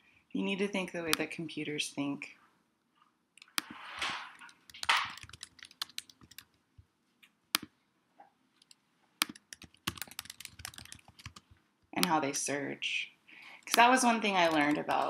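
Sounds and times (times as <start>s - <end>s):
mouse clicks: 3.4s - 3.8s
keyboard typing: 3.4s - 6.6s, 8.6s - 12.2s, 13.5s - 15.0s.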